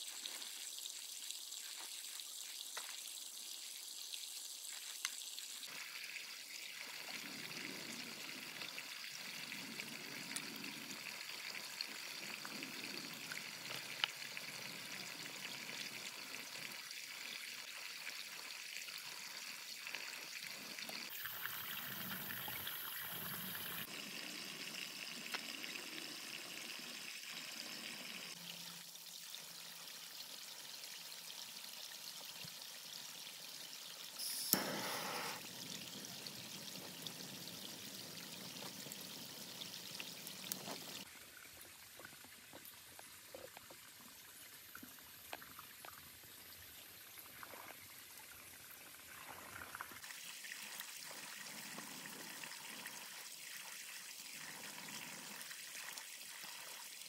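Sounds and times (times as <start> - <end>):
running water splashing: 21.0 - 23.9.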